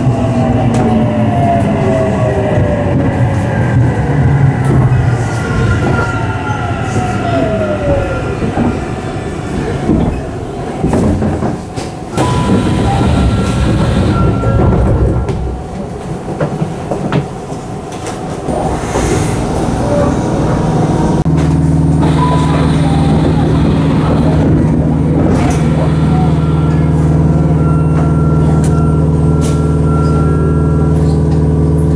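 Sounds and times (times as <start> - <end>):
train rumble: 0.0 - 31.9
train motor whine: 22.0 - 31.2.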